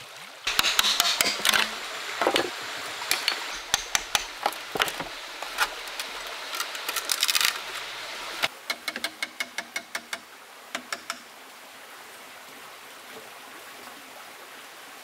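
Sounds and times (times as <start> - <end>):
wooden knocks and clicks: 0.5 - 6.2, 8.7 - 10.2.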